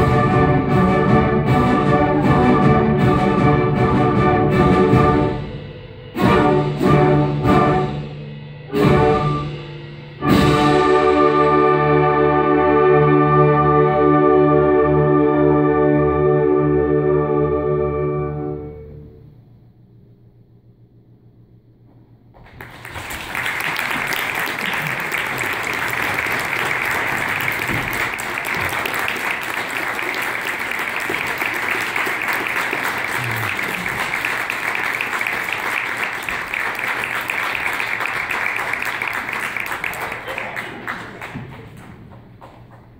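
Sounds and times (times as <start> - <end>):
audience applauding: 22.4 - 42.9.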